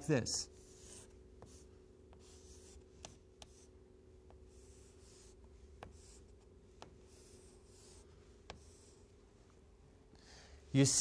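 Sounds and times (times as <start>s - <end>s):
chalk scratching on chalkboard: 0.5s - 3.7s, 4.3s - 9.1s
chalk tapping on board: 0.7s - 9.0s.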